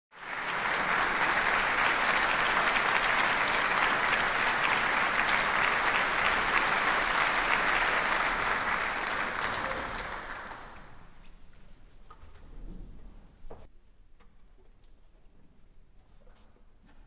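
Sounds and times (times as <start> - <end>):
audience applauding: 0.1 - 11.2.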